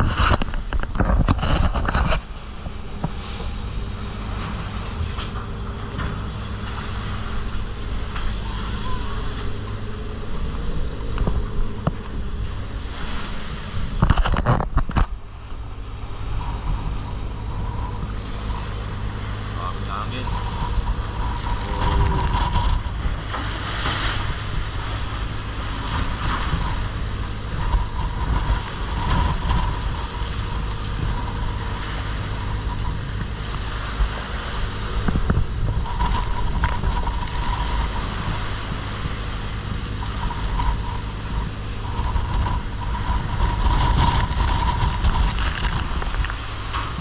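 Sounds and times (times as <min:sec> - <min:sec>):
boat engine hum: 0:00.0 - 0:47.0
waves breaking: 0:00.0 - 0:47.0
wind buffeting microphone: 0:00.0 - 0:47.0
faint whistle: 0:08.4 - 0:09.2.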